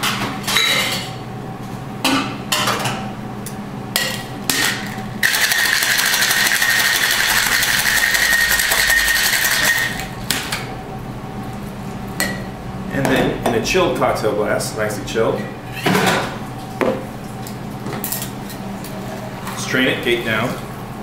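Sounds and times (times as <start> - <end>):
ice rattling in cocktail shaker: 5.2 - 10.0
shaker tin and glass clattering: 5.2 - 10.0.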